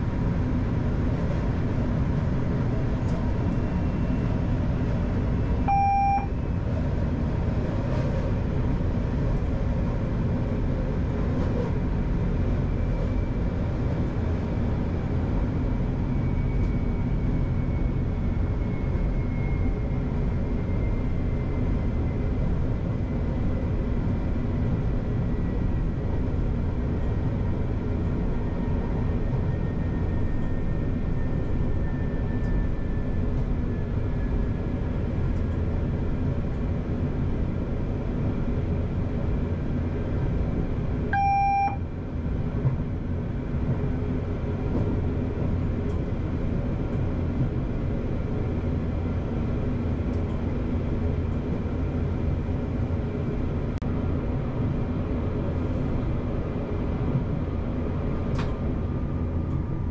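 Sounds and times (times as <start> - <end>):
train running rumble: 0.0 - 59.9
short electronic beep: 5.7 - 6.3, 41.2 - 41.8.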